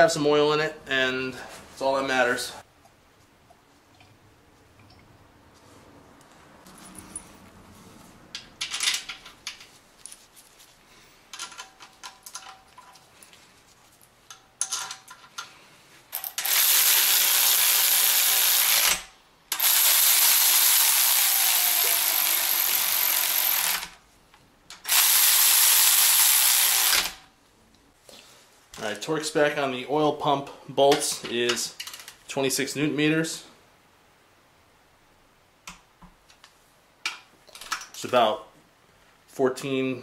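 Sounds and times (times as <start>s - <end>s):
power ratchet clicking: 16.1s - 24.0s, 24.8s - 27.2s.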